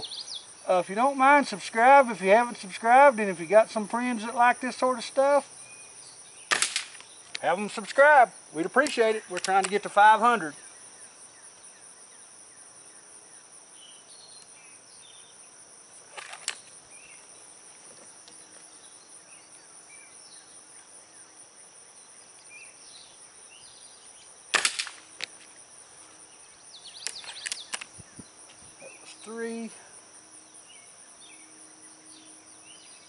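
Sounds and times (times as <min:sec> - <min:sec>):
insect chirring: 0:00.0 - 0:33.0
air rifle shot crack: 0:06.5 - 0:07.0, 0:24.5 - 0:25.0.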